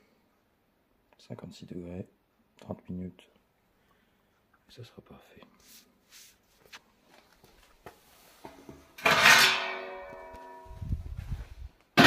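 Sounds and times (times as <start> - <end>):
metallic clang ringing: 9.0 - 10.8.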